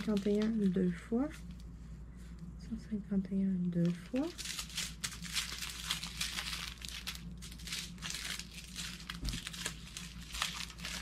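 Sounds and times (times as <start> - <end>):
plastic bags crinkling: 0.0 - 1.0, 3.8 - 11.0.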